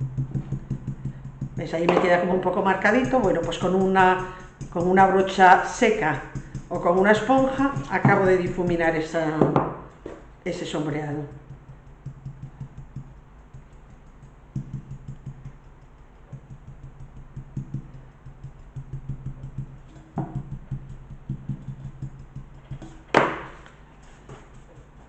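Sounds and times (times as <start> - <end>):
brush tapping paint: 0.0 - 25.0.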